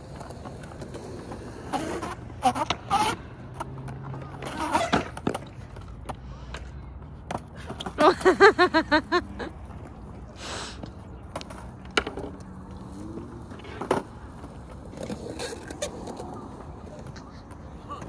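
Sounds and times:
skateboard wheels scrubbing on concrete: 0.0s - 5.8s
skateboard clacks and scuffs: 0.0s - 8.4s, 9.6s - 18.0s
person laughing: 8.0s - 9.6s.

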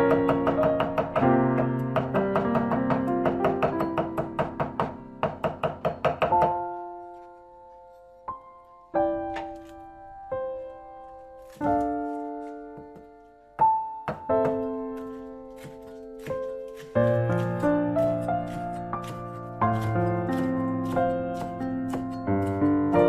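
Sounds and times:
cleaver chopping on wooden board: 0.0s - 6.6s, 14.1s - 22.6s
instrumental music with piano: 0.0s - 23.0s.

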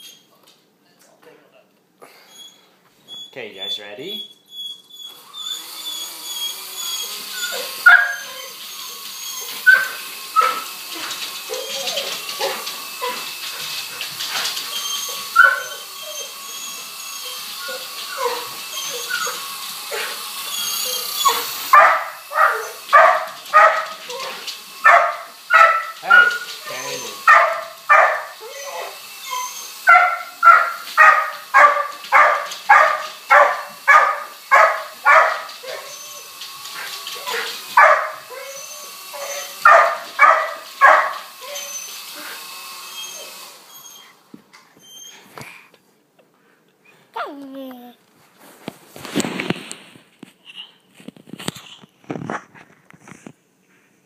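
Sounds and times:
rc helicopter whine: 5.1s - 23.6s
dog yelping barks: 6.4s - 13.3s, 14.3s - 41.9s.

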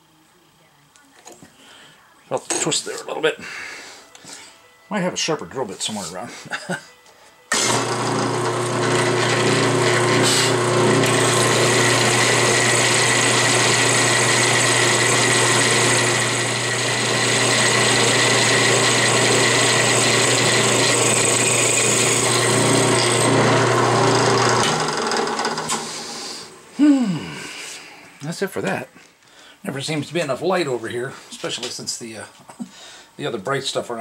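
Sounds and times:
drill boring into metal: 7.5s - 26.6s
drill press motor running: 7.5s - 26.7s.

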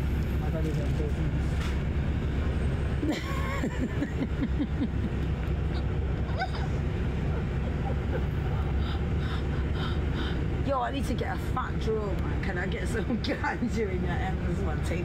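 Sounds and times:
bus engine rumble and road noise: 0.0s - 15.0s.

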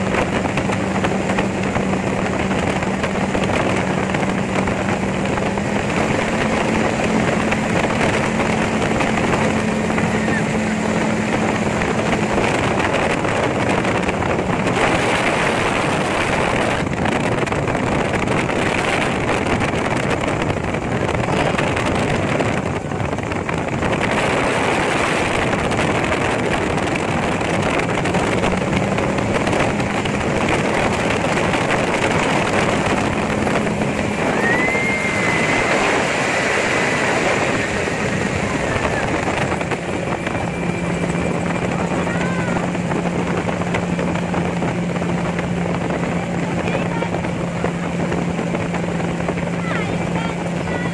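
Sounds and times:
engine and propeller drone: 0.0s - 50.9s
wind rushing over microphone: 0.0s - 50.9s.

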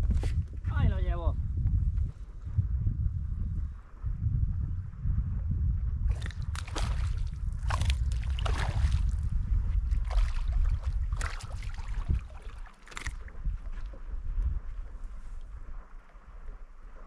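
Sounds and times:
wind buffeting microphone: 0.0s - 17.0s
fish thrashing at surface: 6.1s - 9.1s, 10.0s - 13.4s
water sloshing against boat hull: 6.1s - 14.1s
water splashes: 6.1s - 14.1s.

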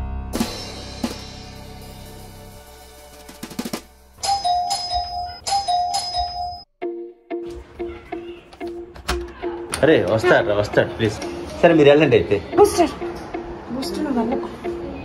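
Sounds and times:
background music: 0.0s - 15.0s
doorbell ding-dong chime: 4.2s - 6.7s.

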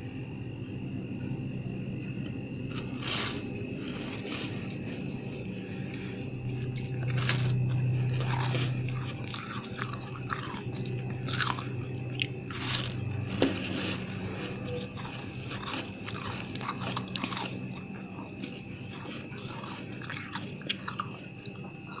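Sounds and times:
frost being crunched: 2.7s - 3.5s, 6.8s - 9.3s, 12.3s - 14.6s.

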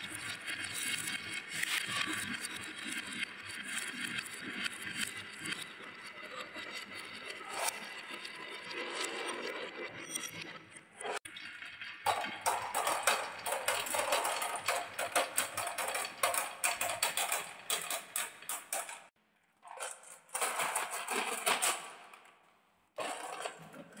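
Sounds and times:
marbles rolling on wooden track: 11.0s - 22.4s, 23.0s - 24.0s
marbles clattering in plastic truck: 12.0s - 22.4s, 23.0s - 24.0s.

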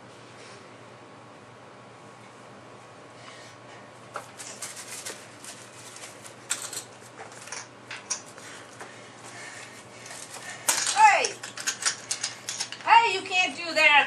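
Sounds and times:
rustles: 4.3s - 6.4s.

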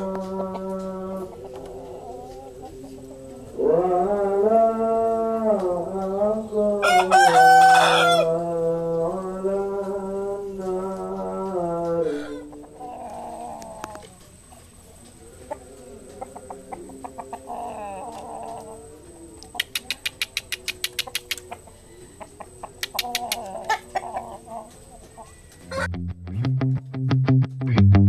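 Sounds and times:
rooster clucking: 0.0s - 26.0s.

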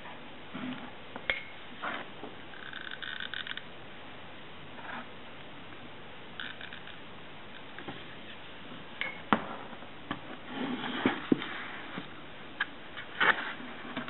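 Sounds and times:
scraping rustle: 13.0s - 14.0s.

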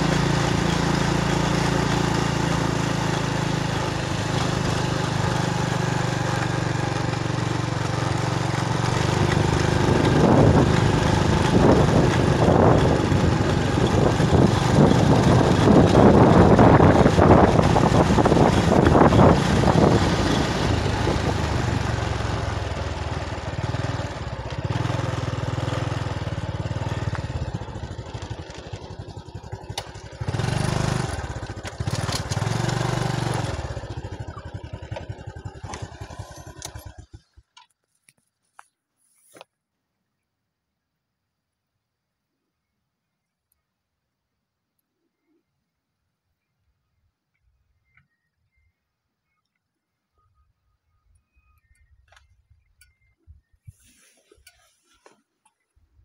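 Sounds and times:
motorbike engine running: 0.0s - 37.7s
wind rushing over microphone: 9.8s - 22.2s.

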